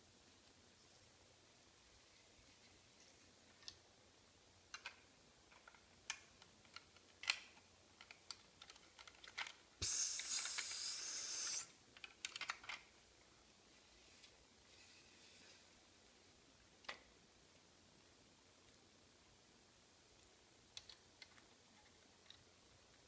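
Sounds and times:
plastic bricks clicking: 0:04.7 - 0:09.6, 0:12.0 - 0:12.9
loud hiss: 0:09.8 - 0:11.8.

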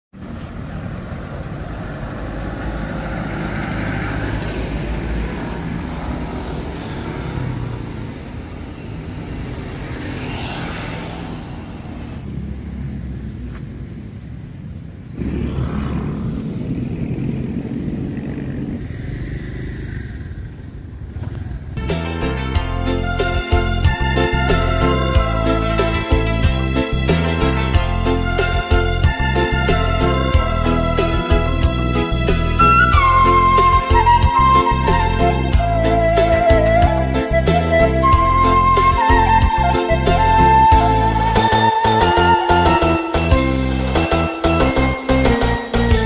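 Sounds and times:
cars and motorbikes passing: 0:00.2 - 0:46.0.

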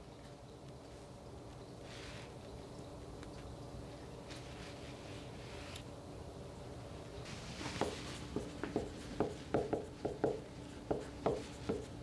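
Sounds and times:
marker writing on whiteboard: 0:07.7 - 0:12.0.

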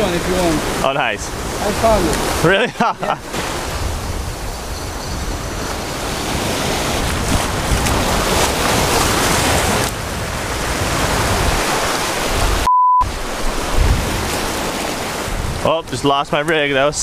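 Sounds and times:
waves breaking on shore: 0:00.0 - 0:17.0
wind on microphone: 0:03.2 - 0:15.7
electronic beep: 0:12.7 - 0:13.1.

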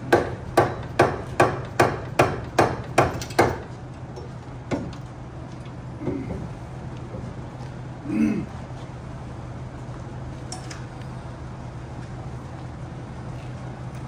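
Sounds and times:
mallet hammering axle shaft: 0:00.0 - 0:03.7.

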